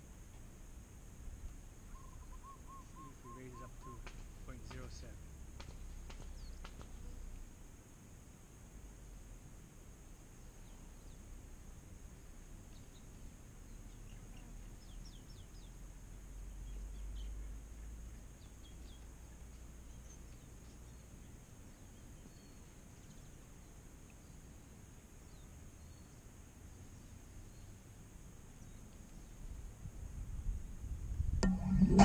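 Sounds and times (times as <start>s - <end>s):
small birds chirping: 1.4s - 7.4s, 12.6s - 27.8s, 28.5s - 29.6s
high-pitched hum: 31.4s - 32.0s
low rumble: 31.4s - 32.0s.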